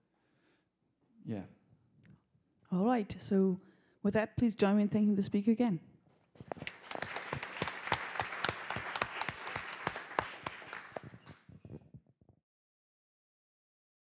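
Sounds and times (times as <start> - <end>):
audience applauding: 6.4 - 11.5.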